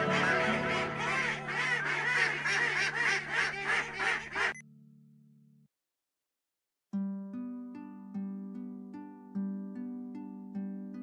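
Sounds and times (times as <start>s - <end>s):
background music: 0.0s - 3.9s
ducks quacking: 0.0s - 4.6s.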